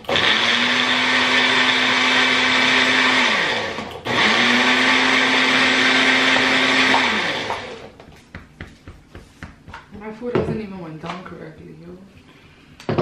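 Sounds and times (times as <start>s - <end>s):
blender motor running: 0.0s - 7.9s.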